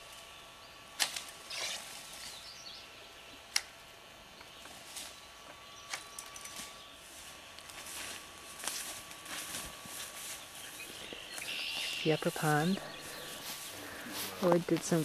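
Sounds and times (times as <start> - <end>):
twigs and branches snapping: 1.0 - 2.3, 3.5 - 3.8
rustle of brush: 4.6 - 5.2, 6.5 - 15.0.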